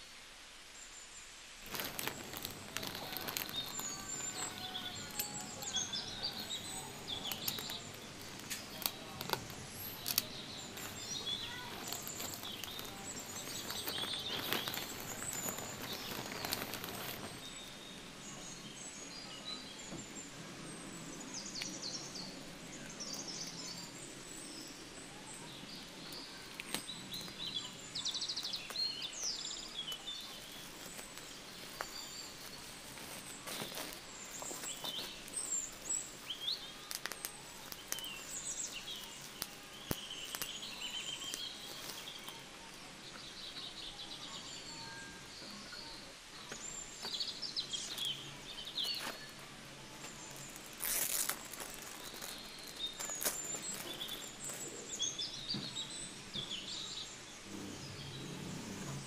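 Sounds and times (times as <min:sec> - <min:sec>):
plastic mailer bag crinkling: 0:01.6 - 0:17.7, 0:26.1 - 0:42.4, 0:47.8 - 0:55.0
bubble wrap rustling: 0:01.6 - 0:18.5, 0:22.0 - 0:43.0, 0:46.6 - 0:56.0
birds chirping: 0:01.6 - 0:59.0.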